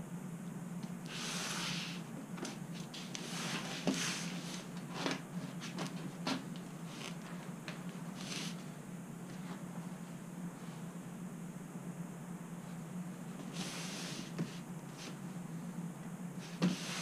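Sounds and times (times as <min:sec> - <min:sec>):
cardboard boxes rustling and scraping: 0:01.2 - 0:08.6, 0:16.4 - 0:17.0.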